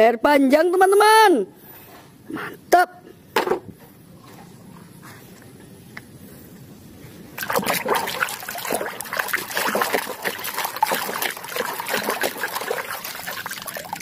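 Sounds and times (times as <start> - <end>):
water splashing and sloshing: 7.4 - 14.0.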